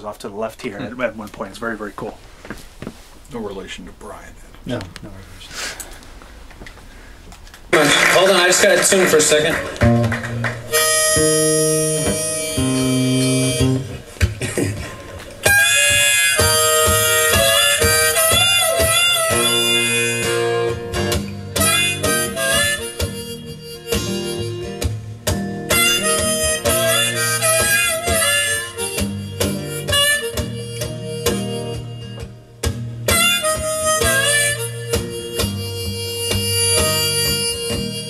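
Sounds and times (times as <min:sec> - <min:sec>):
harmonica playing: 0:08.2 - 0:38.0
acoustic guitar: 0:08.5 - 0:38.0.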